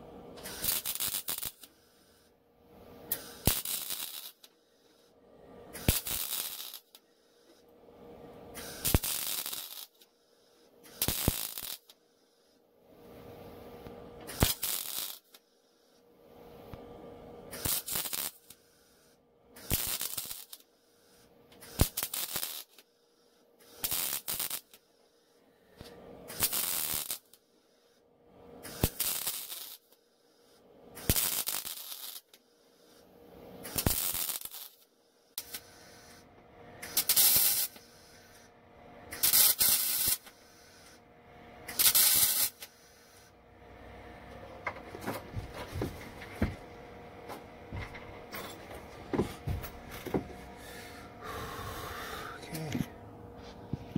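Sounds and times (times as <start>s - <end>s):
welding arc crackling: 0.4s - 1.7s, 3.1s - 4.5s, 5.8s - 7.0s, 8.6s - 10.0s, 10.9s - 12.0s, 14.3s - 15.4s, 17.5s - 18.6s, 19.6s - 20.7s, 21.6s - 22.8s, 23.7s - 24.8s, 26.3s - 27.4s, 28.6s - 30.0s, 31.0s - 32.4s, 33.6s - 36.2s, 36.8s - 38.5s, 39.1s - 41.0s, 41.7s - 43.3s.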